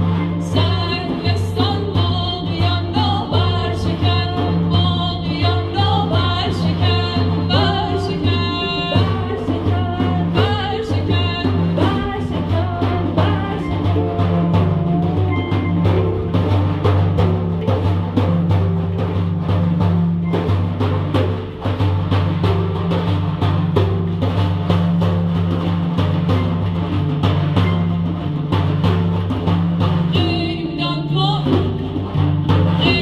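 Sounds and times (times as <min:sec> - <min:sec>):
woman singing: 0:00.0 - 0:15.8, 0:30.1 - 0:32.0, 0:32.7 - 0:33.0
handpan ringing notes: 0:00.0 - 0:33.0.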